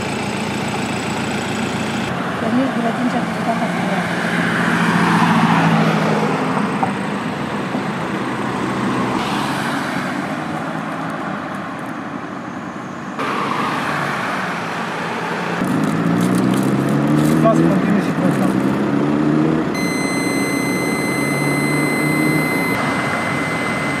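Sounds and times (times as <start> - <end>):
car engine idling: 0.0 - 2.9
cars passing on street: 0.0 - 24.0.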